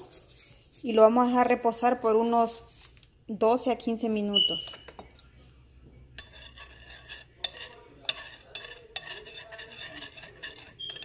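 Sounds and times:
utensil scraping bowl: 0:06.1 - 0:11.0.

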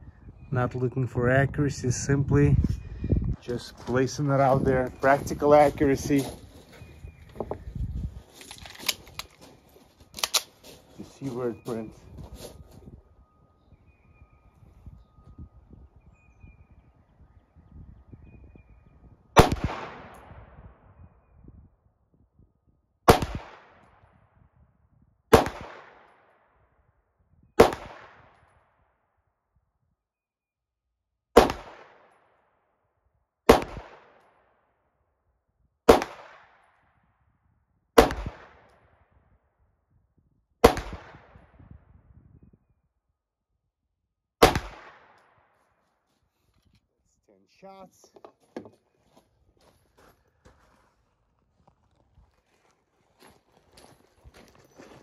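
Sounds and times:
pistol shots with echo: 0:19.4 - 0:20.6, 0:23.1 - 0:24.0, 0:25.3 - 0:26.2, 0:27.6 - 0:28.4, 0:31.4 - 0:32.1, 0:33.5 - 0:34.3, 0:35.9 - 0:36.7, 0:38.0 - 0:38.7, 0:40.6 - 0:41.5, 0:44.4 - 0:45.4.

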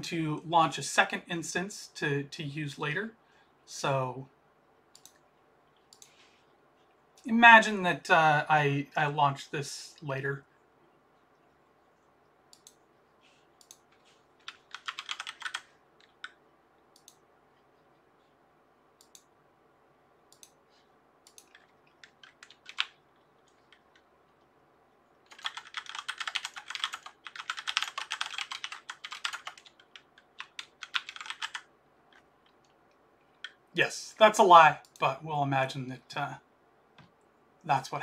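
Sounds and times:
computer keyboard typing: 0:13.5 - 0:17.2, 0:21.3 - 0:24.1, 0:25.2 - 0:33.6.

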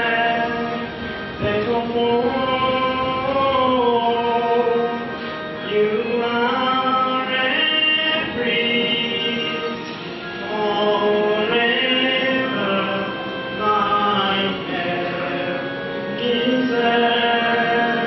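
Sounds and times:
voices singing slow liturgical melody: 0:00.0 - 0:18.0.

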